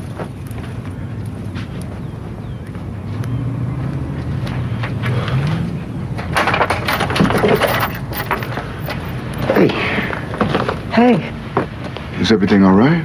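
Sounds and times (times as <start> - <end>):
vehicle engine humming: 0.0 - 12.8
short knocks and clatter: 4.8 - 9.7.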